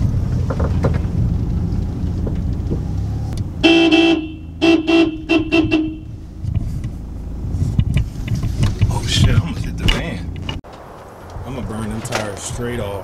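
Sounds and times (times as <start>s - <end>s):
car engine rumbling low: 0.0s - 13.0s
car horn honking: 3.6s - 6.2s.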